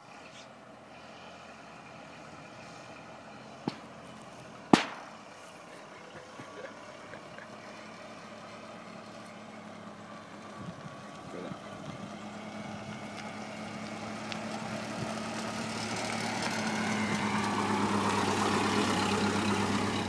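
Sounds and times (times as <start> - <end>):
truck engine running: 0.0 - 20.0
sharp engine pops: 3.6 - 5.4.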